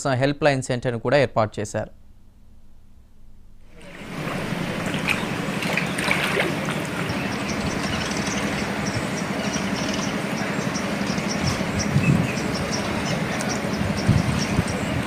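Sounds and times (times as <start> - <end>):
river rushing: 3.7 - 14.0.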